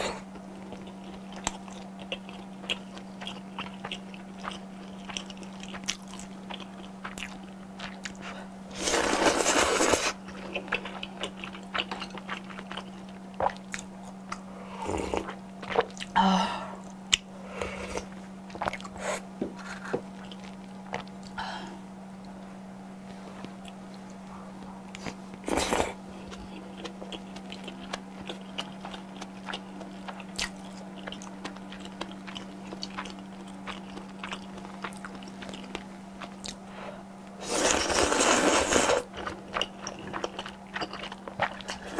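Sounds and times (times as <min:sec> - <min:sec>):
wet chewing of noodles: 0:00.0 - 0:16.2, 0:16.8 - 0:21.4, 0:24.9 - 0:36.7, 0:37.4 - 0:41.9
steady low hum: 0:00.0 - 0:41.9
noodle slurping: 0:08.8 - 0:10.2, 0:37.4 - 0:39.1.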